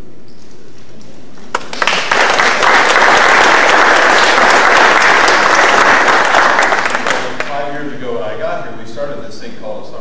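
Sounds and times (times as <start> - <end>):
audience applauding: 1.5 - 7.6.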